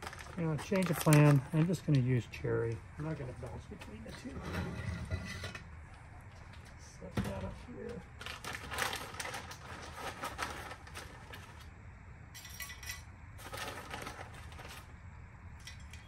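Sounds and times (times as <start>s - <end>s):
wood chips rattling: 0.0s - 2.2s, 13.4s - 14.9s.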